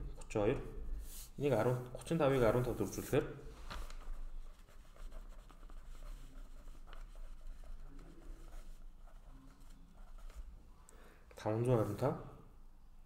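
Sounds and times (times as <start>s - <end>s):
pen on paper rustling: 2.3s - 10.6s.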